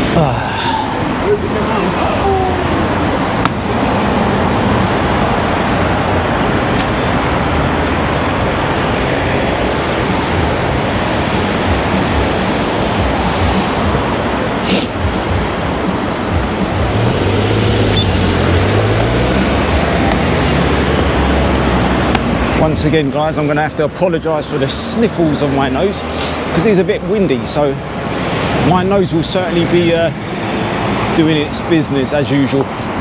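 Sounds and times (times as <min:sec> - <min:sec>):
vehicle engine passing: 0:00.0 - 0:23.0
road traffic noise: 0:00.0 - 0:33.0.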